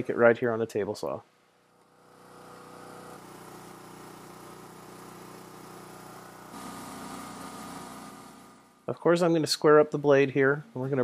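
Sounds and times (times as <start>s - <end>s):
generator engine idling: 1.9s - 8.8s.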